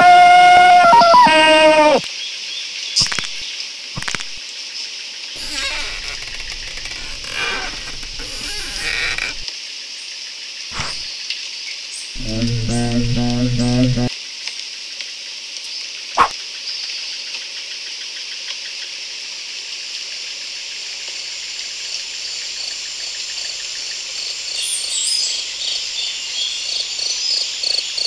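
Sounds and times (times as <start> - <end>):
sharp click: 3.0 - 3.4, 4.0 - 4.4
low croaking pulses: 4.0 - 4.4, 5.4 - 9.4, 10.7 - 11.1, 12.2 - 14.1
insect chorus: 5.4 - 9.4.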